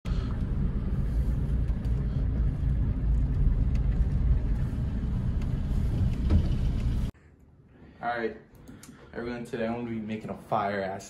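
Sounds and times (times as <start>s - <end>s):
car engine and road rumble: 0.1s - 7.1s.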